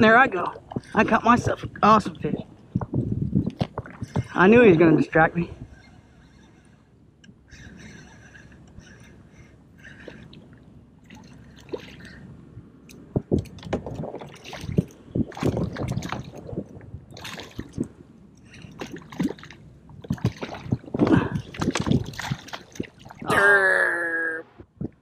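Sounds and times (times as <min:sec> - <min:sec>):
water sloshing against kayak hull: 0:00.0 - 0:23.3
knocks and splashes: 0:11.0 - 0:12.2, 0:12.9 - 0:18.0, 0:18.6 - 0:23.5.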